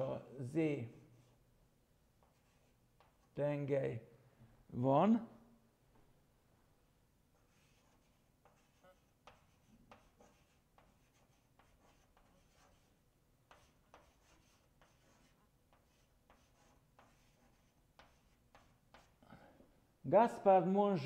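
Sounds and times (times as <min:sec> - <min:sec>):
chalk tapping and scratching on chalkboard: 0:02.2 - 0:03.3, 0:07.4 - 0:19.2.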